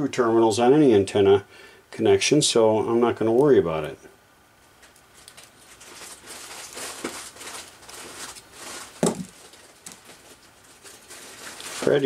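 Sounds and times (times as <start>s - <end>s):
cat rustling cardboard boxes: 5.6s - 12.0s.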